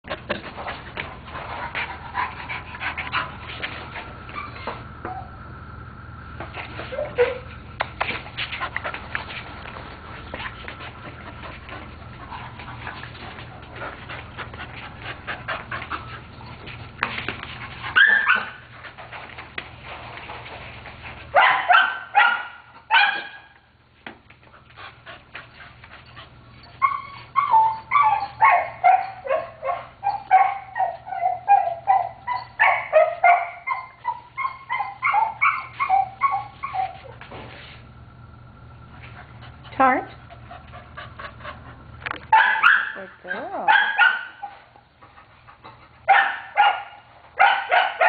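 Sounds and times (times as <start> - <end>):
dog whining and yelping: 2.2 - 5.4, 6.7 - 7.6, 17.8 - 18.7, 26.0 - 37.2.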